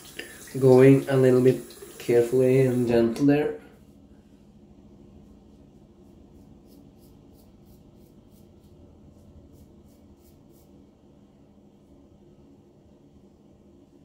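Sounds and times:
razor scraping stubble: 5.5 - 10.8.

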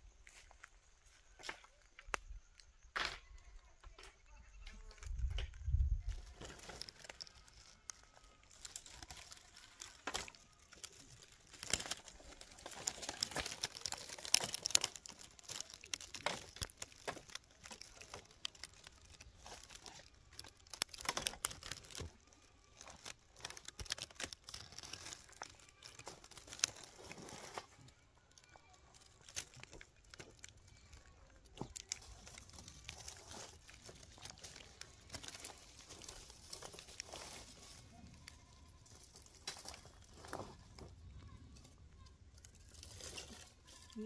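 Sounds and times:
crackling and rustling: 0.0 - 44.0.

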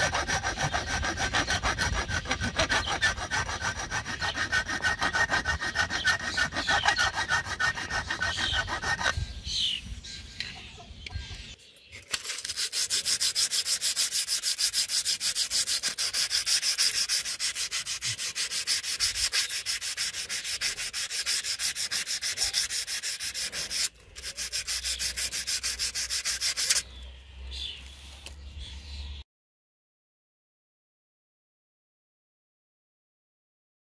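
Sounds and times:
sandpaper rasping on steel: 0.0 - 9.2, 12.1 - 26.9.

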